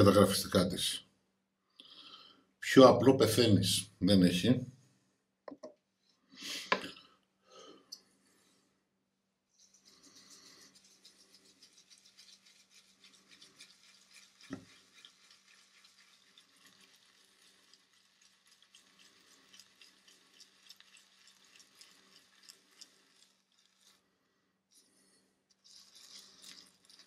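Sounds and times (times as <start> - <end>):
shaving brush swishing on soap: 9.6 - 24.0, 25.6 - 27.0.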